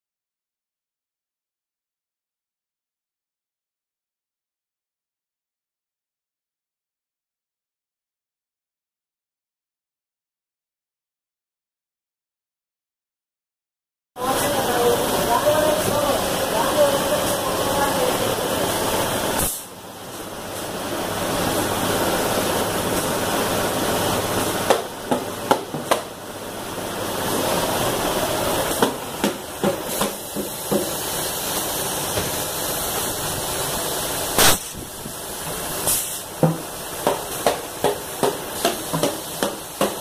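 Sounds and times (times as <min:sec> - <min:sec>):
hissing machinery noise: 0:14.2 - 0:40.0
sharp crack: 0:34.4 - 0:34.8.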